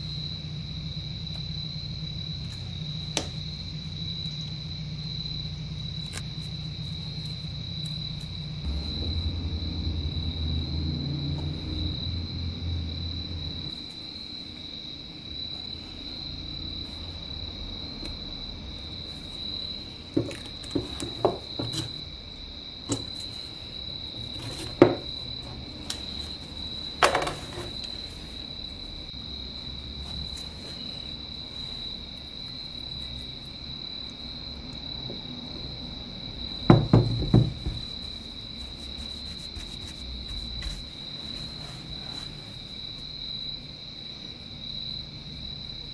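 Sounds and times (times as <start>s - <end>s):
steady high-pitched tone: 8.6s - 13.8s.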